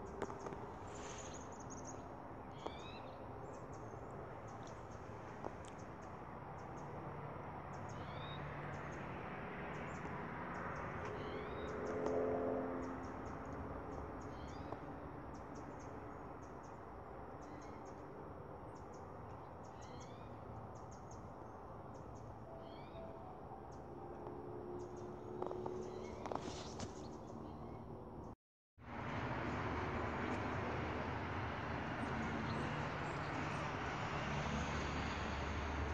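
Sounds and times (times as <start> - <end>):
small birds chirping: 0.0 - 3.9.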